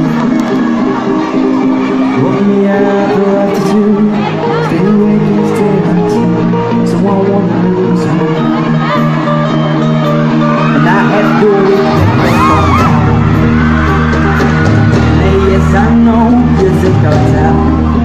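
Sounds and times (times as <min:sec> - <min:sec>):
crowd yelling and whooping: 0:00.0 - 0:18.0
live band music: 0:00.0 - 0:18.0
man singing: 0:02.0 - 0:09.6, 0:10.7 - 0:13.1, 0:14.9 - 0:18.0.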